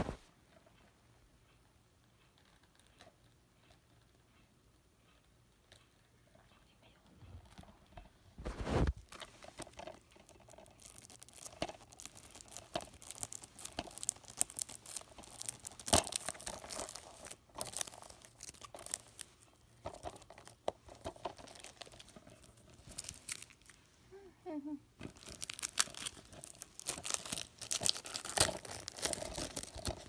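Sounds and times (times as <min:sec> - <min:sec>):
plastic packaging crinkling: 0:08.5 - 0:23.8, 0:25.0 - 0:30.0.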